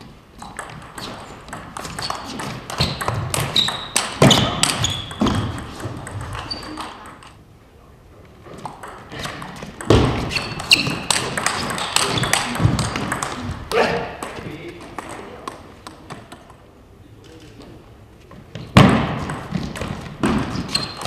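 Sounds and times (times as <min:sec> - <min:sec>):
table tennis ball clicking: 0:00.4 - 0:07.4, 0:08.6 - 0:13.4.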